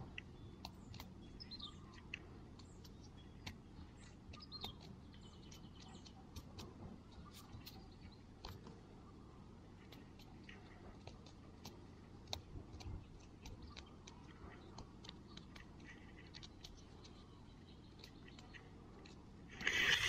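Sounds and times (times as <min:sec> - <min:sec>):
fingers handling small nugget: 0:09.8 - 0:19.7.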